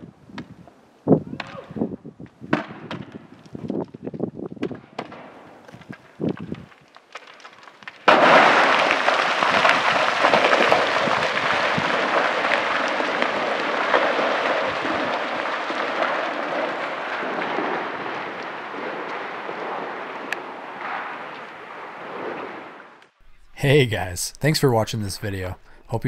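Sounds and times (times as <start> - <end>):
rocks clattering down cliff: 2.6 - 22.6.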